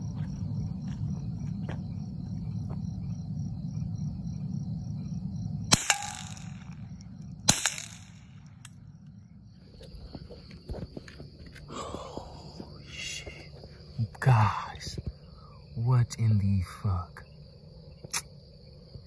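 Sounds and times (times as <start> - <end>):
steady low rumble: 0.0 - 19.0
gunshots with echo: 7.5 - 8.3.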